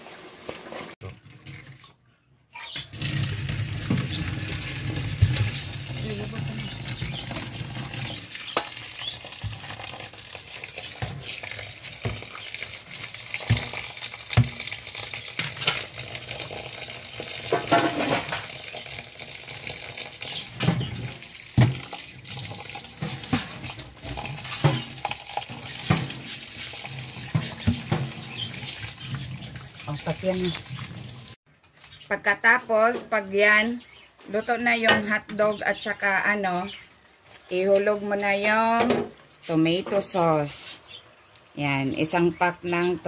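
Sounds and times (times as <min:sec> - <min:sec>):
tap water running: 0:00.0 - 0:02.0, 0:02.6 - 0:31.4
knocks in metal sink: 0:21.6 - 0:21.9.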